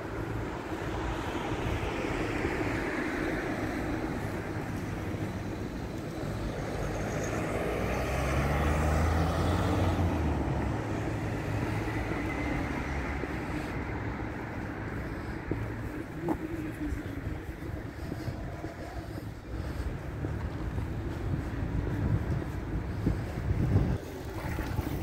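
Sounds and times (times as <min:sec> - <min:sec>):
street noise hiss: 0:00.0 - 0:25.0
van driving past: 0:06.6 - 0:13.4.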